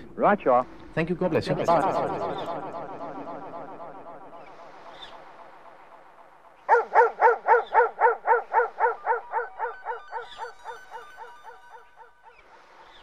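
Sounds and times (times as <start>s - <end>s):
electronic dub track: 0.0s - 6.1s
echoing yelp-like sound: 0.0s - 12.3s
faint synth tones: 0.0s - 13.0s.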